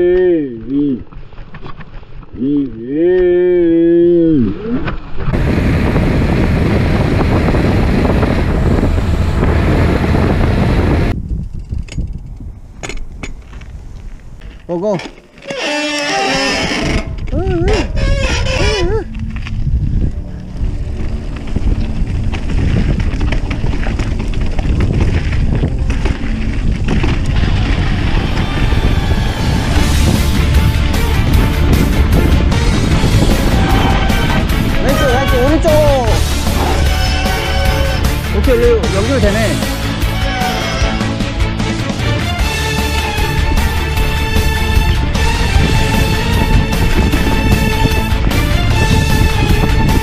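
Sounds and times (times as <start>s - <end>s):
bike knocking and rattling: 1.0s - 2.4s, 11.1s - 19.6s, 20.5s - 42.0s
tyres rumbling: 4.1s - 50.0s
wind buffeting microphone: 5.2s - 14.7s, 16.5s - 41.3s, 43.1s - 50.0s.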